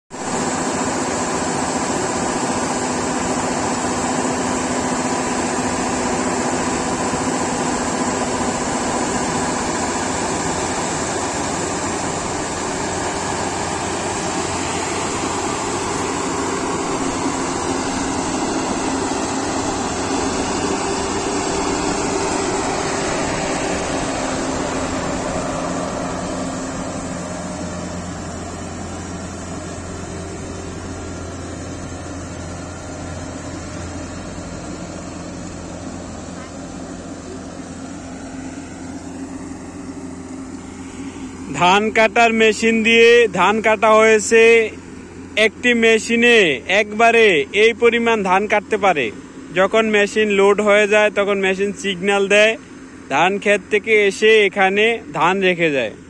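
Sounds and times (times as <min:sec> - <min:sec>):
combine harvester droning: 0:00.1 - 0:56.0
auger whining: 0:00.2 - 0:56.0.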